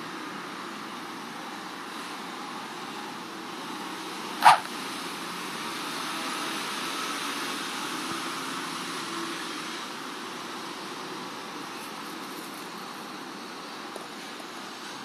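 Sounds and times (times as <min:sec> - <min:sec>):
steady background hum: 0:00.9 - 0:05.6
loud animal call: 0:04.4 - 0:04.7.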